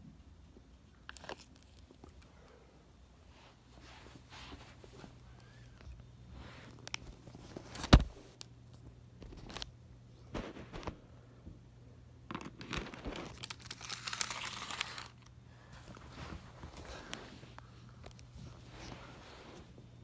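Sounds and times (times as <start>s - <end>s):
plastic packaging crinkling: 12.3s - 15.3s.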